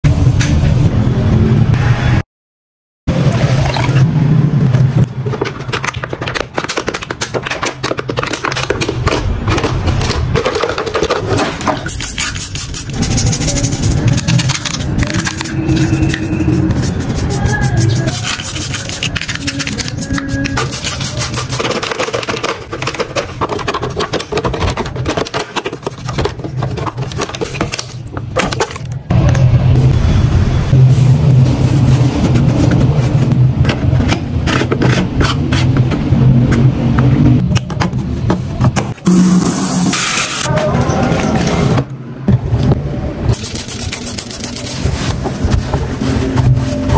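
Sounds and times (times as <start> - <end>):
plastic clicking and scraping: 5.3 - 11.9, 18.2 - 29.0
toothbrush scrubbing plastic: 5.4 - 27.9, 43.4 - 46.7.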